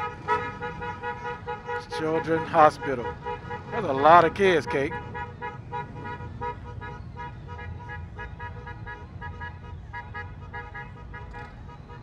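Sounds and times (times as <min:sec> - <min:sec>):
motorcycles rumbling: 0:00.0 - 0:12.0.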